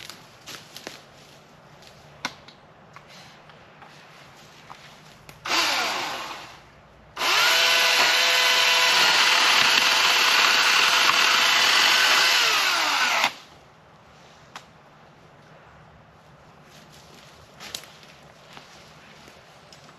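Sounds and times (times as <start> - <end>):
chainsaw cutting into tree trunk: 5.4 - 6.6, 7.2 - 13.4
battery chainsaw whining: 5.5 - 6.6, 7.2 - 13.4.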